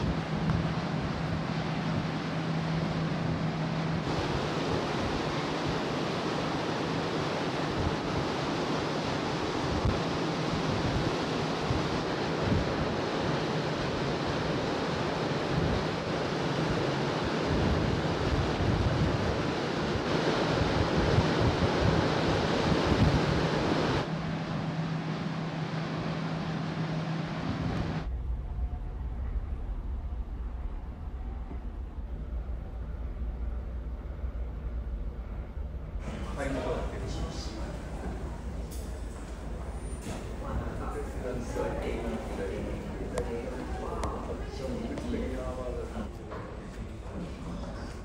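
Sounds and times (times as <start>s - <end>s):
wind on microphone: 0.0s - 24.1s
sea rushing: 0.0s - 32.5s, 33.2s - 48.0s
ship engine hum: 0.0s - 48.0s.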